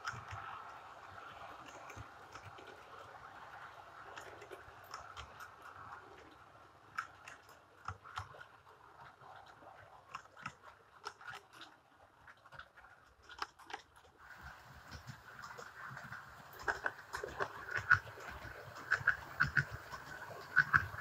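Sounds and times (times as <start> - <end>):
model train wheels clicking: 0.0 - 11.8, 12.4 - 21.0
faint steady whine: 14.2 - 21.0.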